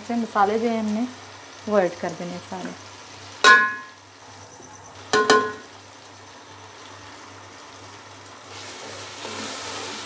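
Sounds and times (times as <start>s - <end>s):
masala sizzling: 0.0s - 10.0s
spoon clinking metal pot: 3.4s - 4.0s, 5.2s - 5.7s.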